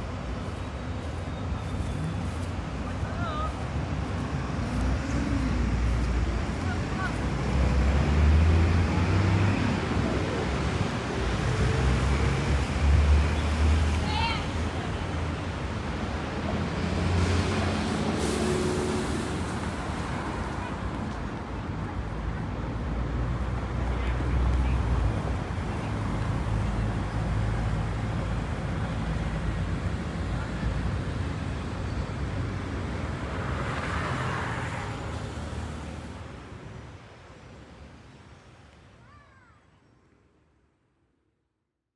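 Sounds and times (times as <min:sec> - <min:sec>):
heavy vehicle engine rumble: 0:00.0 - 0:13.4
passing vehicles: 0:00.0 - 0:40.4
road traffic rumble: 0:00.0 - 0:40.8.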